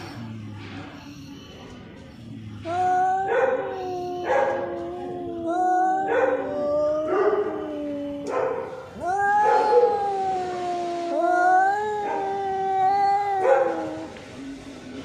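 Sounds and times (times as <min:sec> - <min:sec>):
cats yowling: 0:02.7 - 0:14.3.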